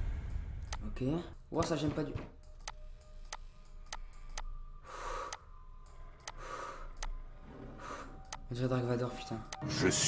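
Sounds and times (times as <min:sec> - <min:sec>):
slow hoarse heavy breath: 0:06.2 - 0:08.3
clock ticking: 0:09.2 - 0:09.6.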